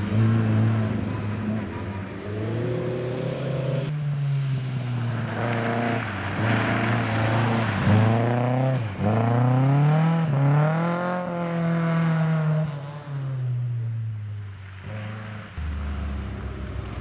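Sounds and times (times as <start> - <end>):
rally car engine revving: 0.0 - 3.9, 4.7 - 13.6.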